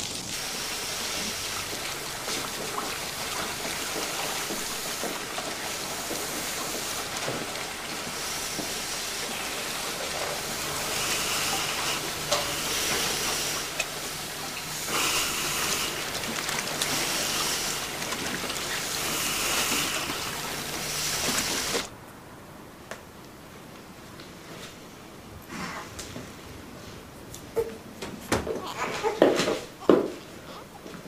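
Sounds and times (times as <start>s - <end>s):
hissing steam: 0.0s - 21.9s
laundry machinery hum: 0.0s - 22.0s.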